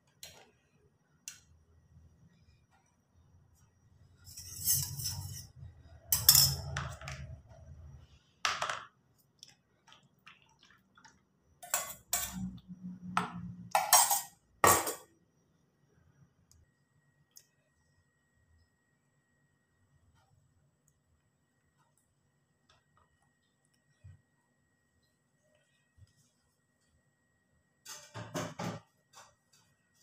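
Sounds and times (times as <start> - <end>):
spoon clinking steel bowl: 6.1 - 7.2, 11.6 - 12.6, 13.2 - 15.1.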